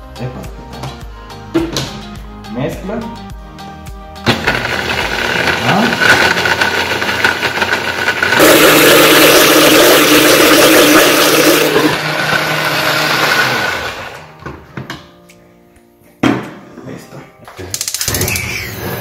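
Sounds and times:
blender motor running: 4.3s - 14.2s.

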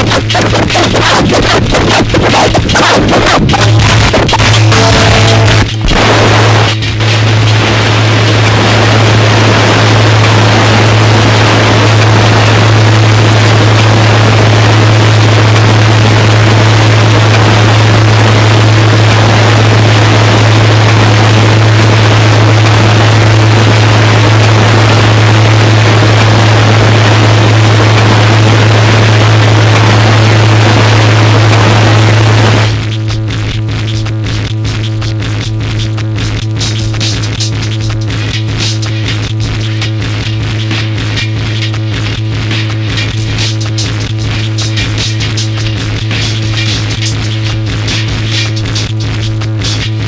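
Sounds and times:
harsh noise wall: 0.0s - 50.0s
heavy low drone: 3.3s - 23.2s.

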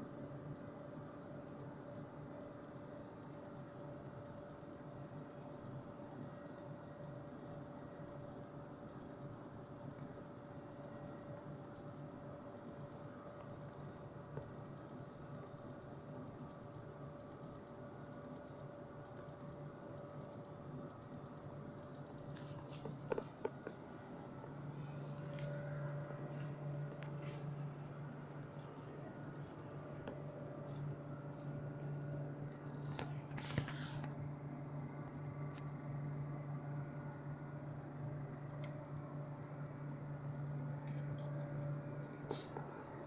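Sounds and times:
hazard flasher ticking: 0.0s - 22.4s
faint steady hum: 0.0s - 43.0s.

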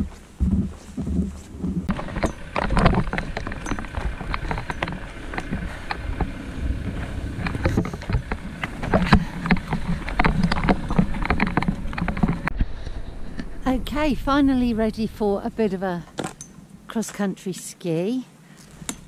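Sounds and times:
footsteps crunching in snow: 0.0s - 12.4s
wind rumble on microphone: 0.0s - 16.9s.

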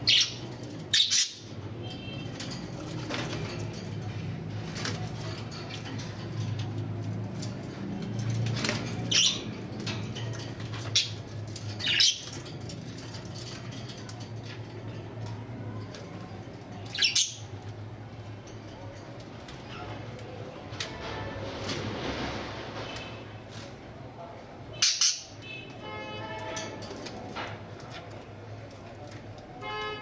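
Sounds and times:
birds flapping wings: 1.7s - 16.0s, 19.2s - 23.8s.

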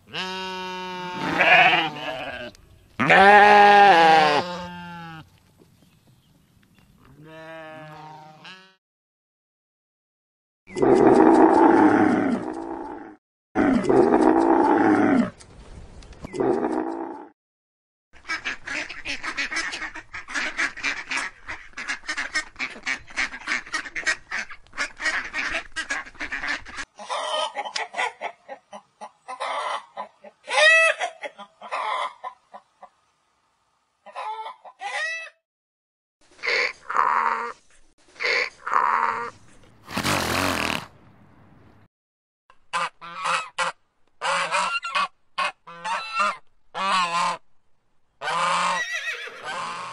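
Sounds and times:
chickens clucking: 18.7s - 33.0s, 34.0s - 35.4s
geese honking and cackling: 42.7s - 47.4s, 48.2s - 49.9s.

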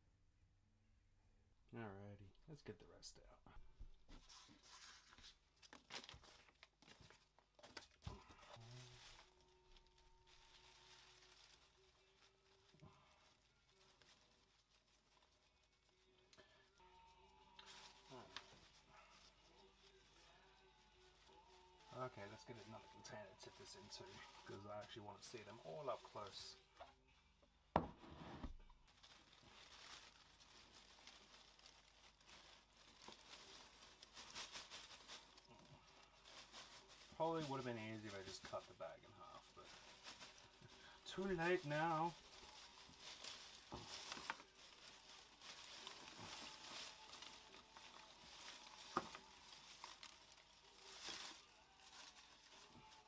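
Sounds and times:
cloth bag rustling and crinkling: 4.1s - 26.7s, 28.1s - 53.0s
dry leaves shaken into plastic tub: 39.6s - 53.0s.

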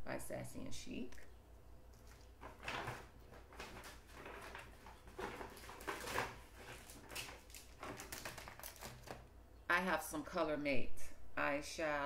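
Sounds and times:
packaging rustling and crinkling: 1.9s - 9.3s.

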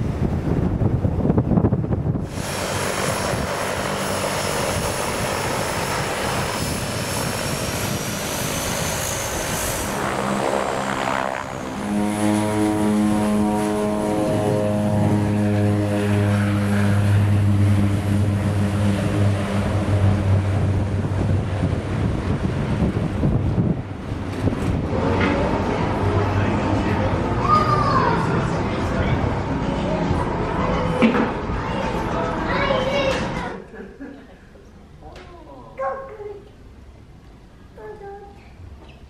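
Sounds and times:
deep propeller drone: 0.0s - 27.4s
turboprop engine turbine whine: 0.0s - 27.4s.

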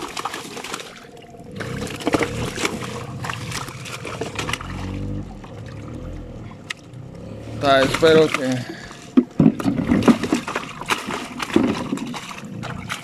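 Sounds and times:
boat motor running: 1.3s - 13.0s
knocks and clicks: 9.1s - 13.0s.

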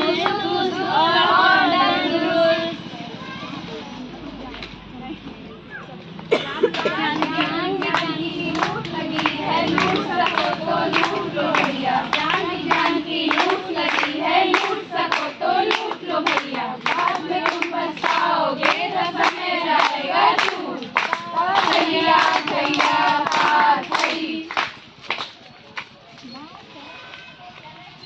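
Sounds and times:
women singing together: 0.0s - 2.9s, 6.3s - 24.8s
hands clapping: 6.7s - 26.3s.

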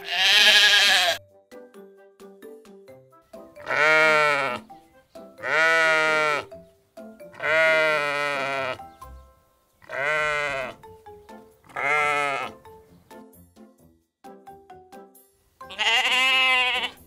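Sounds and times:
sheep bleating: 0.0s - 1.2s, 3.6s - 4.7s, 5.4s - 6.5s, 7.3s - 8.8s, 9.8s - 10.8s, 11.7s - 12.6s, 15.7s - 17.0s
quiet background music: 0.0s - 17.0s.

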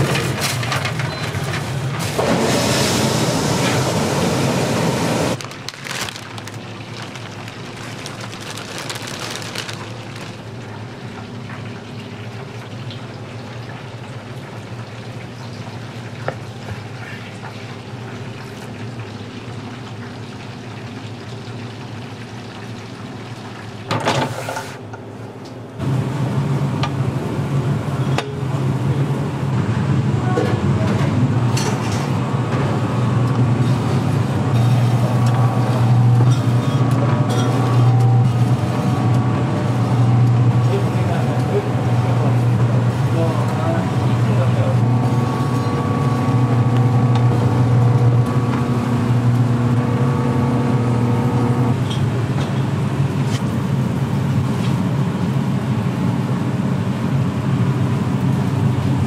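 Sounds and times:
water sloshing and splashing: 5.4s - 11.8s
meat slicer motor humming: 33.1s - 51.8s.

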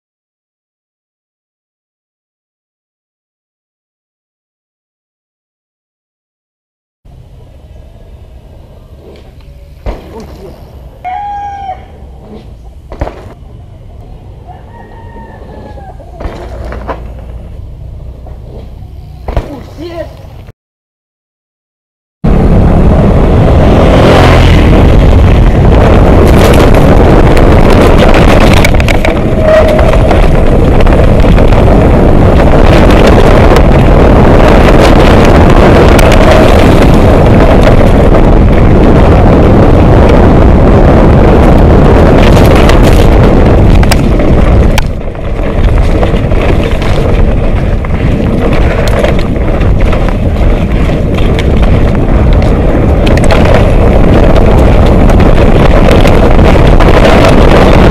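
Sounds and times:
bike knocks and rattles: 16.2s - 17.5s, 26.1s - 35.4s, 42.2s - 57.9s
wind buffeting microphone: 22.2s - 57.9s.

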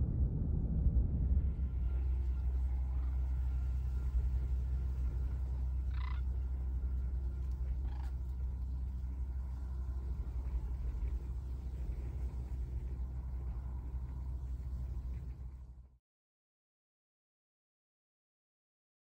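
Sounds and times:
low rumble: 0.0s - 16.0s
cranes calling: 2.8s - 15.6s.

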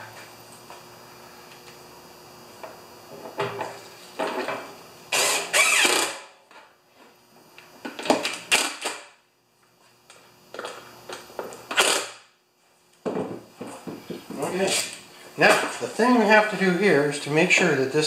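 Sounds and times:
cordless drill driving screws: 5.1s - 6.2s.

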